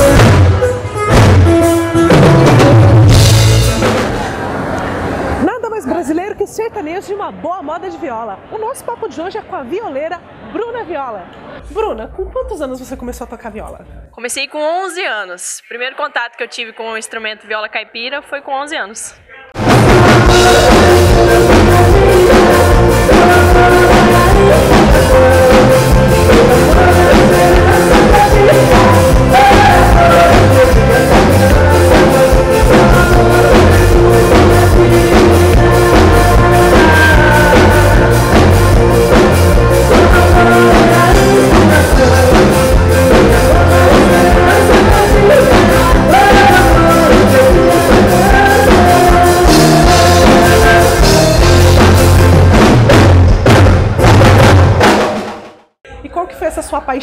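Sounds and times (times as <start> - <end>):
country band music: 0.0 - 4.4, 19.6 - 55.4
drums steady beat: 0.0 - 4.4, 19.6 - 55.5
bass line: 0.0 - 4.6, 19.6 - 55.0.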